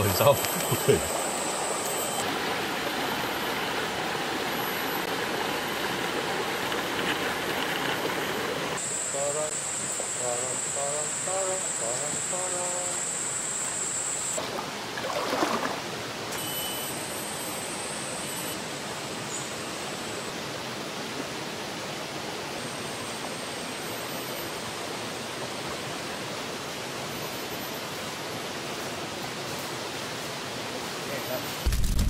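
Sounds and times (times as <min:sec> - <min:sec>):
faint high steady tones: 0:00.0 - 0:05.9, 0:08.8 - 0:14.4, 0:16.3 - 0:20.3
stream rushing: 0:00.0 - 0:08.9, 0:14.4 - 0:16.4, 0:18.6 - 0:31.7.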